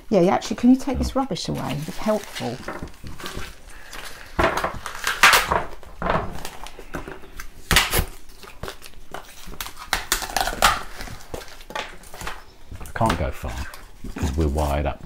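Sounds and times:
paper crumpling and rustling: 1.5s - 12.4s.

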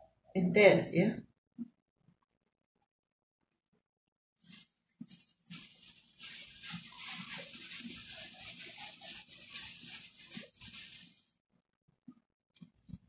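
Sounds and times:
stew hissing on stove: 5.5s - 11.3s.

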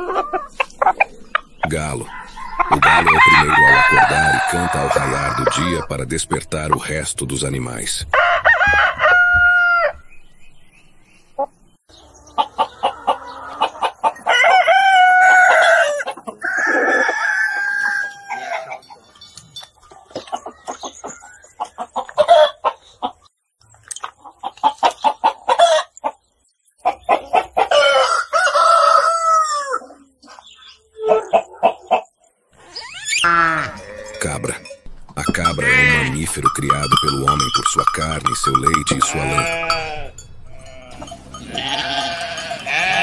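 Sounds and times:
chickens clucking: 0.0s - 9.8s, 11.2s - 43.0s
roosters crowing: 0.0s - 10.1s, 12.0s - 19.3s, 26.8s - 30.2s, 32.6s - 43.0s.

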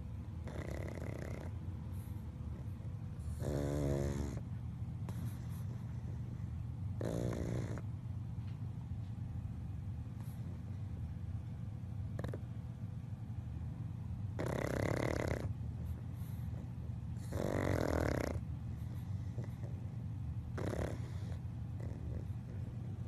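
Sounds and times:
dog snoring: 0.0s - 7.9s, 12.1s - 12.6s, 14.3s - 23.0s.

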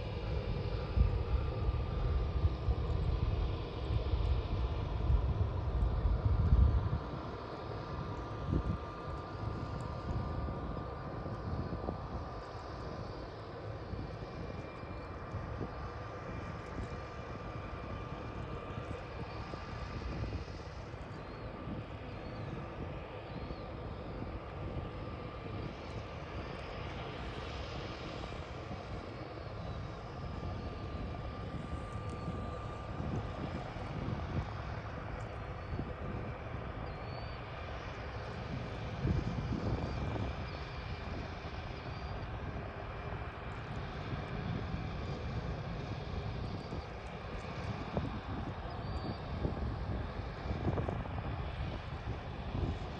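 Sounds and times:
propeller plane engine rumble and whine: 0.0s - 52.9s.

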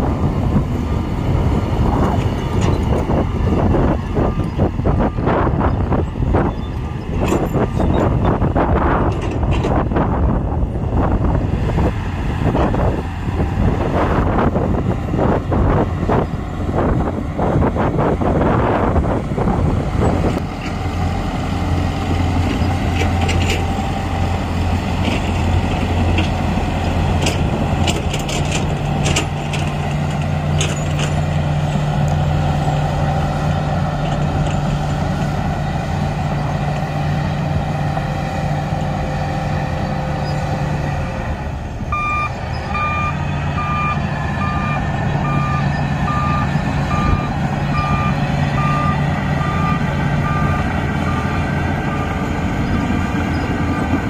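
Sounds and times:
bulldozer diesel engine running: 0.0s - 54.0s
backup alarm beeping: 41.9s - 51.3s.

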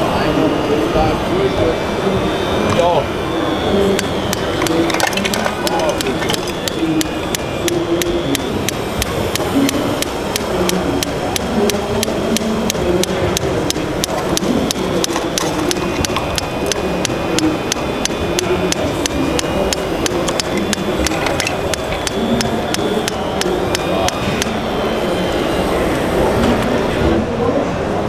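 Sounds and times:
murmur of hall noise: 0.0s - 28.0s
model breaker hammer chattering: 3.9s - 25.5s.

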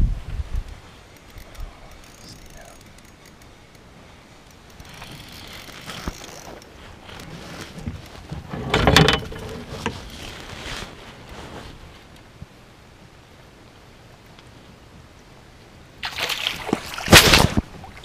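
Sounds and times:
fishing reel whirring and clicking: 1.2s - 3.8s, 4.4s - 6.7s.

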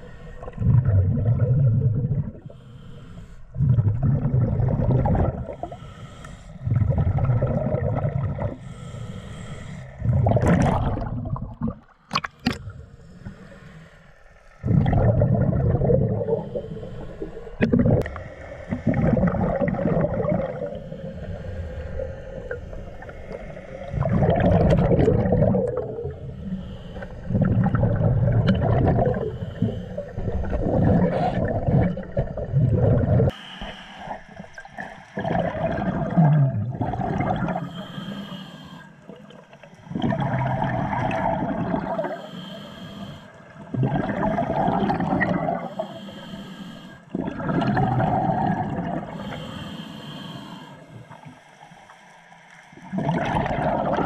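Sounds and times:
diver exhaling bubbly gurgling: 0.0s - 2.6s, 3.5s - 5.8s, 6.6s - 8.8s, 10.0s - 12.8s, 14.6s - 16.6s, 17.6s - 33.3s, 34.1s - 37.8s, 39.1s - 42.2s, 43.6s - 45.8s, 47.1s - 49.3s, 52.8s - 54.0s
quiet regulator inhales: 2.3s - 3.6s, 5.4s - 6.8s, 8.4s - 10.1s, 12.5s - 14.6s, 16.0s - 18.9s, 20.5s - 24.0s, 25.6s - 32.0s, 33.3s - 35.2s, 37.4s - 40.9s, 41.8s - 43.7s, 45.5s - 47.2s, 49.0s - 52.8s.

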